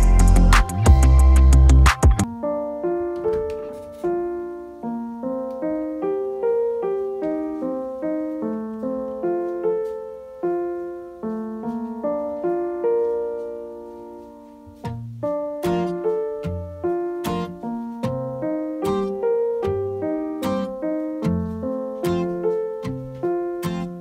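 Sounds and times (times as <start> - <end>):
solo piano melody: 0.0 - 24.0.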